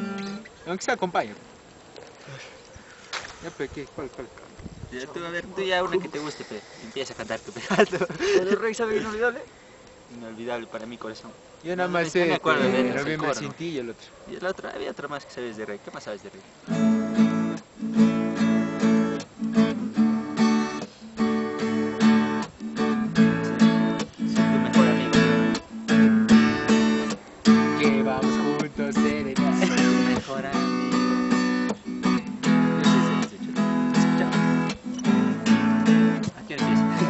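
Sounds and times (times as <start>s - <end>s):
acoustic guitar strumming chords: 0.0s - 0.5s, 16.6s - 37.0s.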